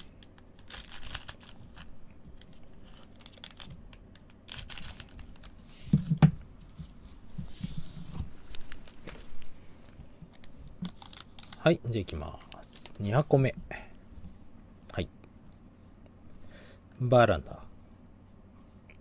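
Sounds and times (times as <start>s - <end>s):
foil packs crinkling: 0.0s - 5.6s, 8.1s - 9.5s, 10.3s - 13.3s.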